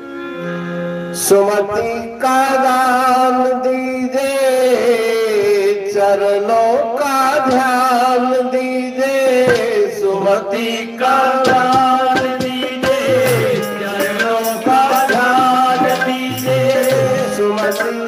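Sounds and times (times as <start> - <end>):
man singing: 1.2 - 18.0
instrumental accompaniment: 11.1 - 18.0
hand drum strokes: 11.4 - 18.0.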